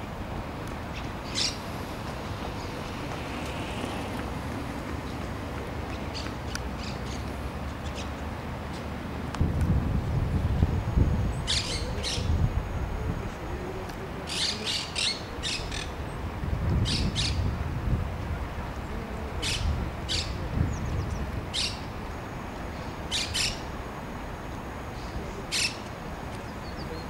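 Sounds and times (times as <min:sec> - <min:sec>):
steady low rumble: 0:00.0 - 0:14.2.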